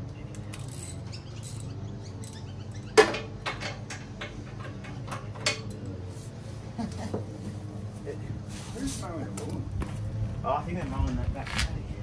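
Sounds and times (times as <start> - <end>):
tools clicking and knocking on steel: 3.0 - 5.9.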